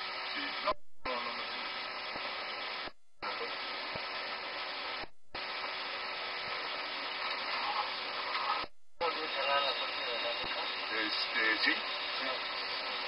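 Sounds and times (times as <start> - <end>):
cockpit background hiss: 0.0 - 12.8
faint steady hum: 0.0 - 13.0.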